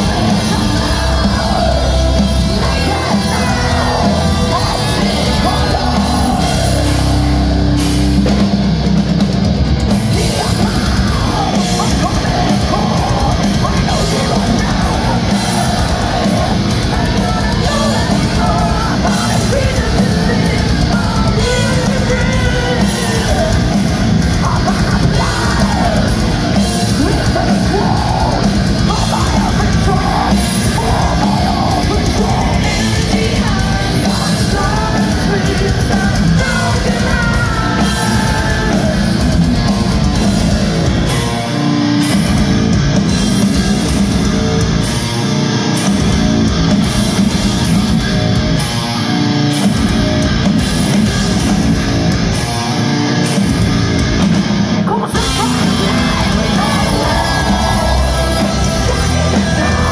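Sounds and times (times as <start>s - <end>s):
bass guitar: 0.0s - 59.9s
distorted guitars: 0.0s - 59.9s
drums: 0.0s - 59.9s
woman singing: 54.9s - 59.9s.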